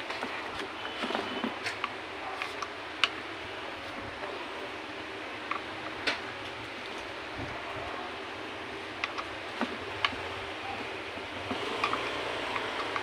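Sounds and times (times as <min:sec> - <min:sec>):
clicks and taps of parts: 0:00.0 - 0:03.3, 0:05.4 - 0:07.0, 0:09.0 - 0:10.3, 0:11.4 - 0:13.0.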